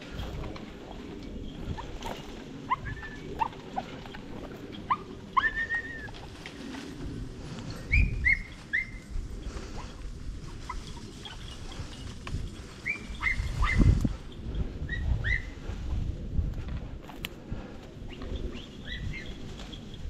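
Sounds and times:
low rustling: 0:00.0 - 0:20.0
dogs yipping: 0:01.6 - 0:06.2, 0:07.9 - 0:12.1, 0:12.8 - 0:14.2, 0:14.8 - 0:15.6.

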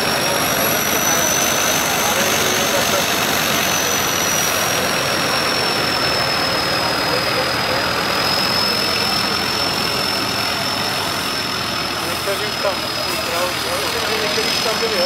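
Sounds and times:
thin high whistle: 0:00.0 - 0:11.6
truck diesel engine droning: 0:00.0 - 0:15.0.

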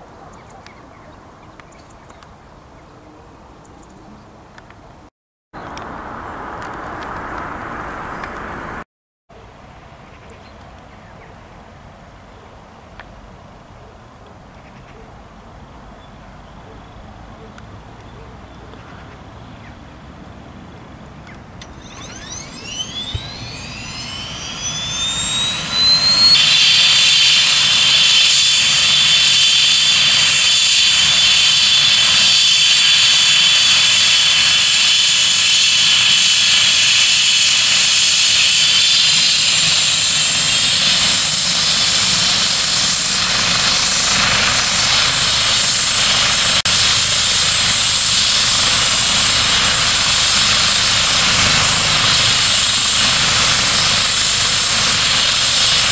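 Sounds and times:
helicopter engine whine: 0:05.6 - 0:08.8, 0:21.6 - 0:55.9
helicopter rotor rushing: 0:21.6 - 0:55.9.

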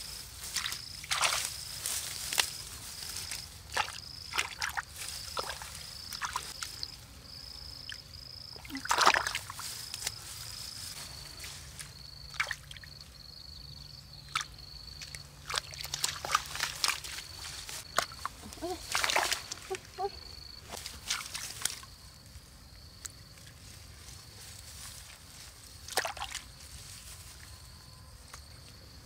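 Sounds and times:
wet splashes: 0:00.4 - 0:02.5, 0:03.2 - 0:06.8, 0:08.6 - 0:09.7, 0:12.3 - 0:12.9, 0:14.3 - 0:19.8, 0:25.9 - 0:26.5
hands squelching in muddy water: 0:00.4 - 0:06.7, 0:08.6 - 0:10.1, 0:14.3 - 0:20.1, 0:25.9 - 0:26.5.

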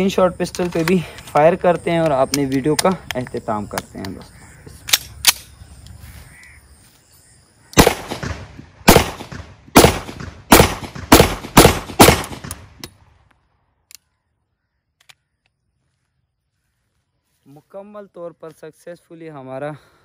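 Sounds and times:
pistol shots with echo: 0:07.8 - 0:12.9.

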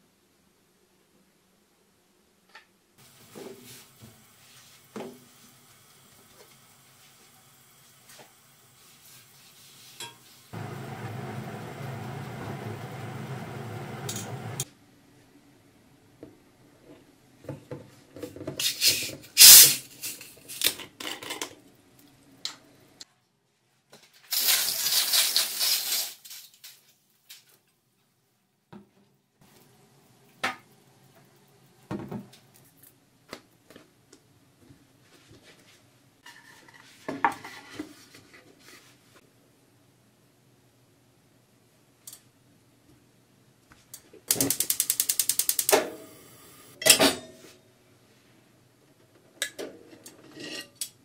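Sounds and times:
hiss: 0:03.0 - 0:14.6, 0:18.6 - 0:20.2, 0:24.3 - 0:26.4.

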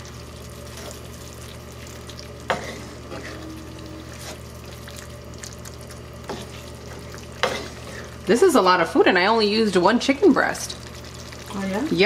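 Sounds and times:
wooden spoon stirring: 0:00.0 - 0:08.5
sauce simmering and sizzling: 0:00.0 - 0:12.0.

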